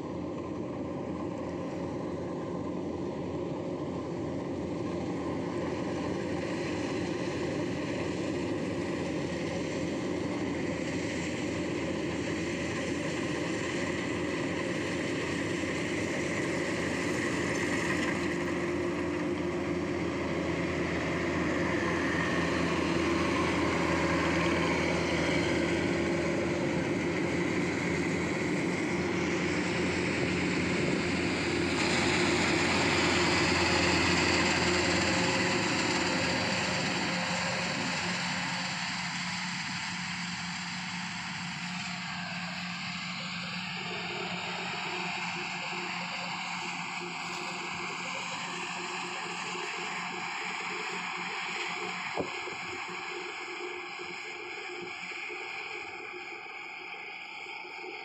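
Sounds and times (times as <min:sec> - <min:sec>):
combine harvester engine drone: 0:00.0 - 0:58.0.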